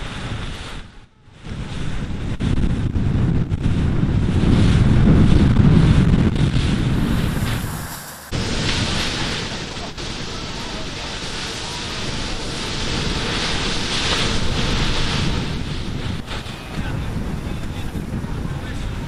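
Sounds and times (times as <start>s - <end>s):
wind buffeting microphone: 0.0s - 19.0s
sea waves washing: 4.6s - 19.0s.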